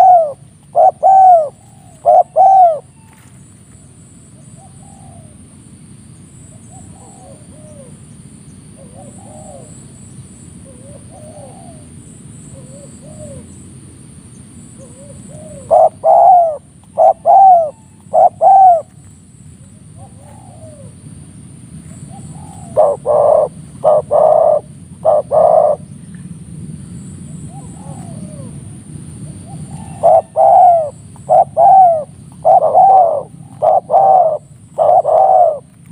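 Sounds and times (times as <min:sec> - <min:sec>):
doves cooing: 0:00.0 - 0:03.2, 0:06.7 - 0:08.1, 0:08.8 - 0:10.0, 0:10.6 - 0:13.6, 0:14.7 - 0:19.0, 0:19.8 - 0:21.1, 0:21.8 - 0:26.3, 0:26.9 - 0:35.9.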